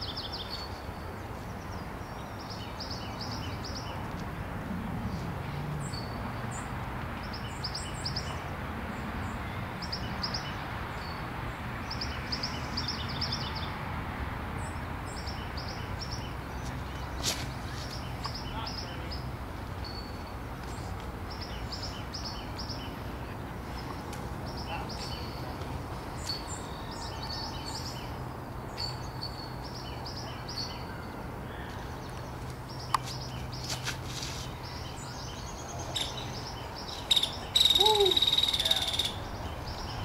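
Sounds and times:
small birds chirping: 14.6 - 40.0.

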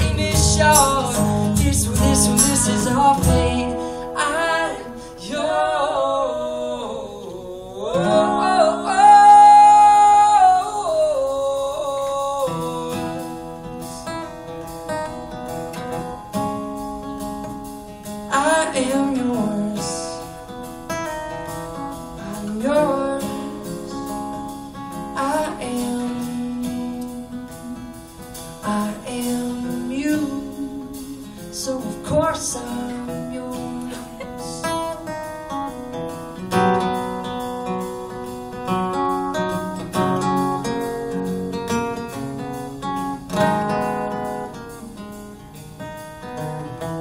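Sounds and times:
man singing long notes: 0.0 - 13.5
strummed acoustic guitar: 0.0 - 47.0.

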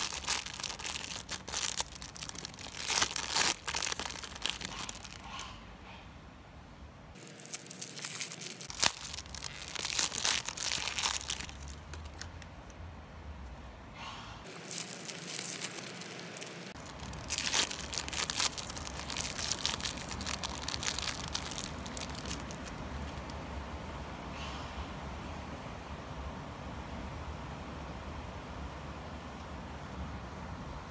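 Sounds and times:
plastic wrapper crinkling: 0.0 - 5.4, 7.2 - 12.8, 14.5 - 23.3.

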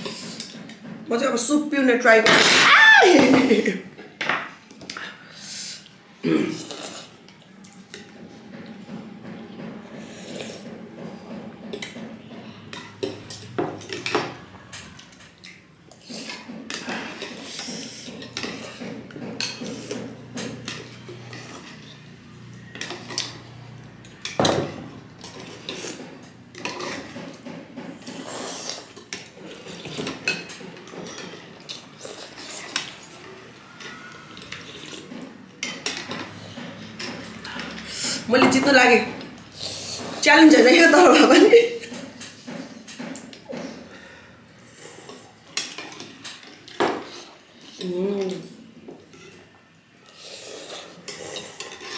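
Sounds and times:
slurping soup: 15.0 - 22.1, 28.0 - 30.3, 30.9 - 38.3, 39.4 - 40.2, 42.2 - 47.8, 48.4 - 51.9.

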